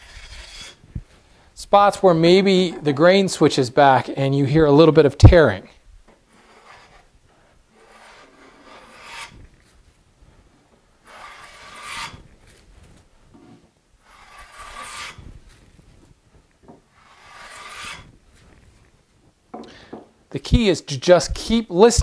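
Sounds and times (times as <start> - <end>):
hand plane shaving a board: 0.0 - 0.8, 6.4 - 7.1, 7.8 - 9.4, 11.0 - 12.2, 14.0 - 15.2, 16.9 - 18.1.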